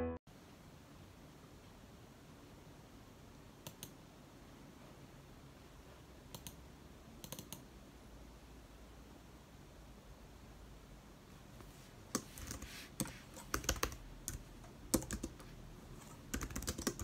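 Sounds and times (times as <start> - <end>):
computer mouse clicks: 3.6 - 4.0, 6.3 - 6.6, 7.2 - 7.7.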